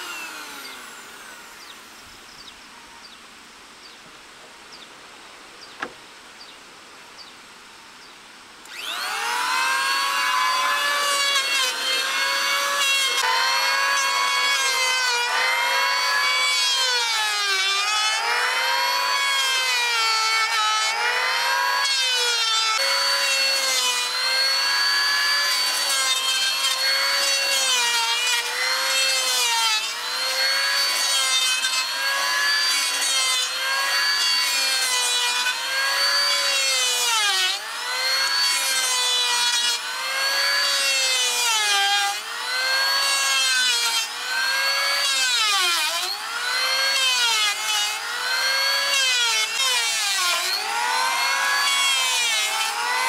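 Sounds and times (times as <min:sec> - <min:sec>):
electric planer whining: 0:00.0 - 0:02.0, 0:08.6 - 0:53.0.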